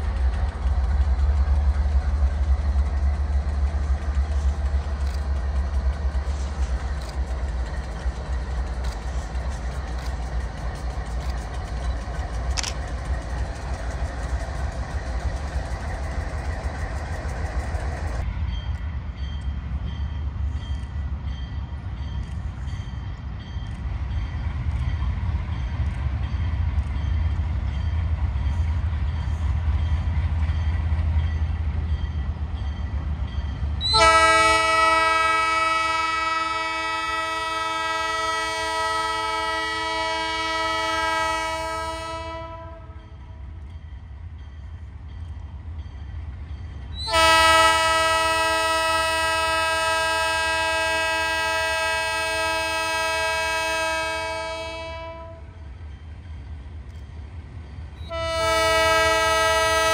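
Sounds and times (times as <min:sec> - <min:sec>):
diesel locomotive engines rumbling: 0:00.0 - 0:59.9
locomotive air horn chord: 0:33.8 - 0:43.0, 0:47.0 - 0:55.5, 0:58.1 - 0:59.9.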